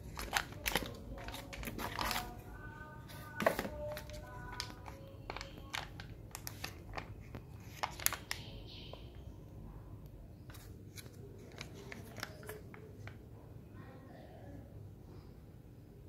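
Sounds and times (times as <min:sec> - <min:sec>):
plastic sachet crinkling: 0:00.0 - 0:09.1, 0:10.5 - 0:13.2.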